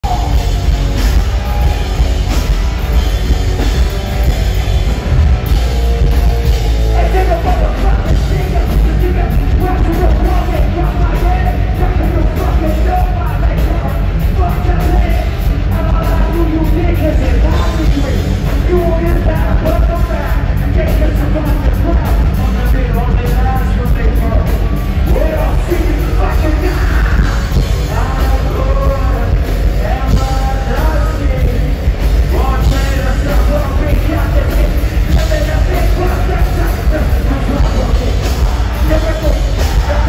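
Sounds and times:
distorted guitars: 0.0 - 40.0
drums: 0.0 - 40.0
heavy bass: 0.0 - 40.0
person singing: 5.5 - 40.0.

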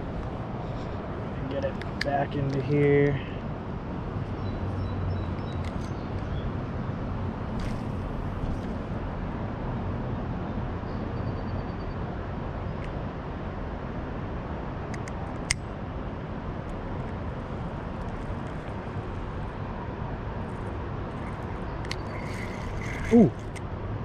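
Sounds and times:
low outdoor rumble: 0.0 - 10.8, 12.2 - 24.0
sharp click: 21.8 - 23.6.

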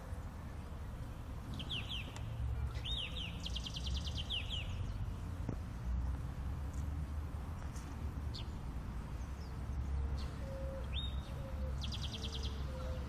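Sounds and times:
small birds chirping: 1.4 - 6.3, 7.6 - 13.0.

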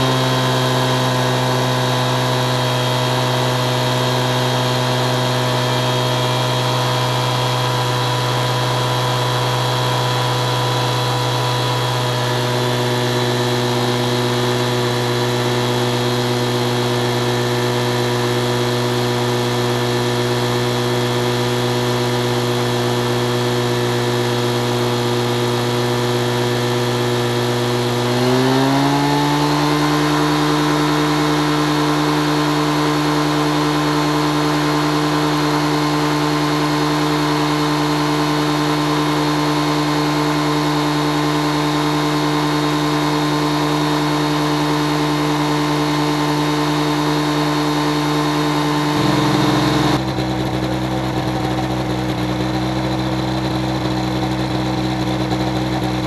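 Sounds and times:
engine and propeller running: 0.0 - 56.0.

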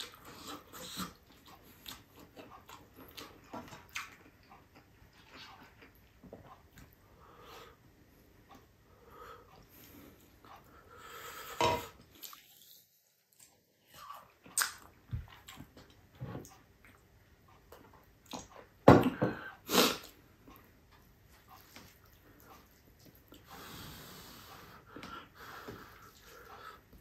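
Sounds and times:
man chewing with mouth smacks: 0.0 - 7.0, 12.0 - 19.2, 19.8 - 23.8, 24.4 - 27.0.

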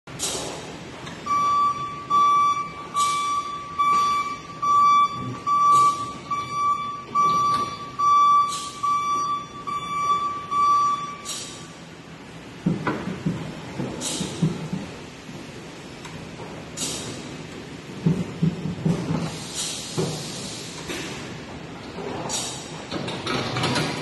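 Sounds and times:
high-pitched warning beeps: 1.2 - 11.6.

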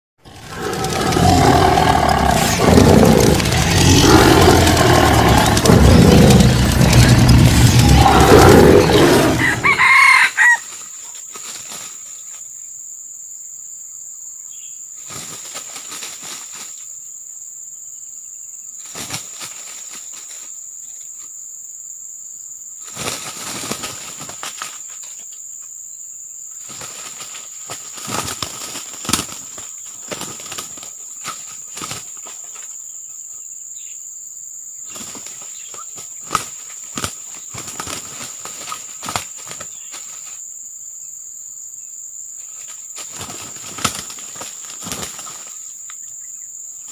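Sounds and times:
roosters flapping in dry leaves: 0.2 - 12.3, 15.0 - 16.9, 18.8 - 20.5, 22.8 - 25.1, 26.6 - 32.8, 34.9 - 40.4, 42.6 - 45.7
high insect whine: 0.2 - 46.9.

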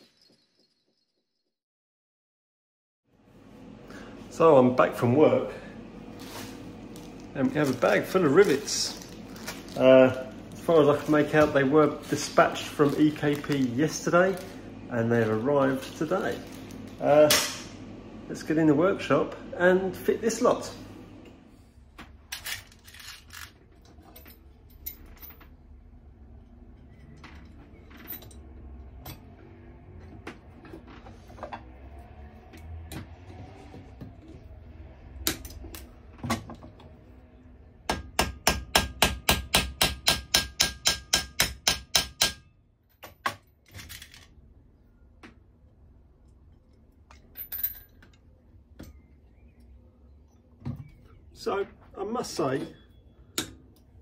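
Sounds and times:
knocks and clatter of tools: 35.3 - 37.0.

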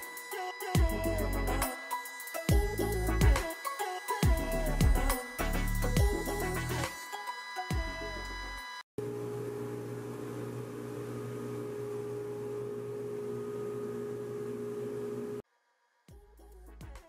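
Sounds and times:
motor humming: 7.8 - 15.4.

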